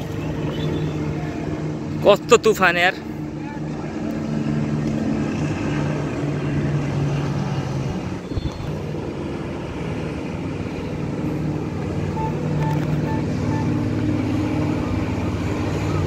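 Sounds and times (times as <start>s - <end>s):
engine drone: 0.0s - 16.0s
wind rushing over microphone: 4.5s - 12.0s
short high beeps: 12.1s - 14.0s.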